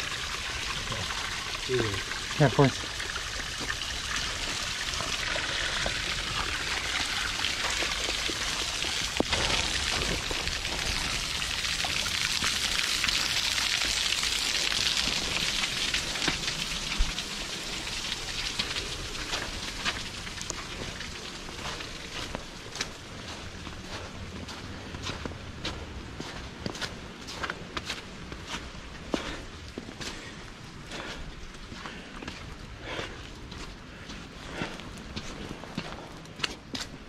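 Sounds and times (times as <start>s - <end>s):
footsteps: 4.5s - 14.1s.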